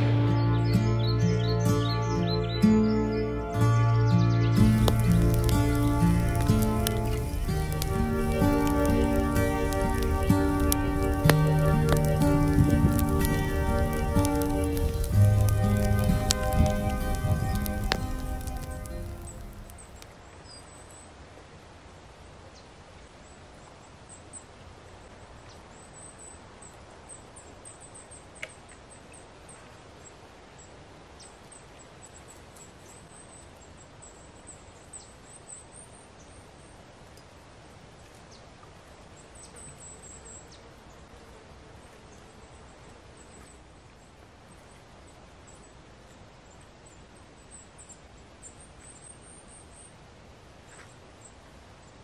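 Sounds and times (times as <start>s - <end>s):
faint low drone: 0.0s - 20.0s
high bird or insect chirps: 0.0s - 20.0s
faint outdoor hiss: 0.0s - 52.0s.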